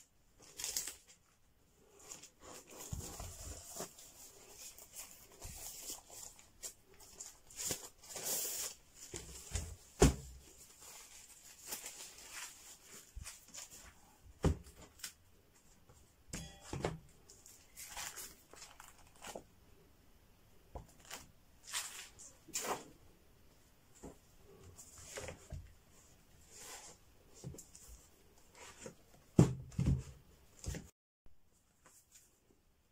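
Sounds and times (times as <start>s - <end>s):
plastic sheets rustling: 0.4s - 15.2s, 17.3s - 19.5s.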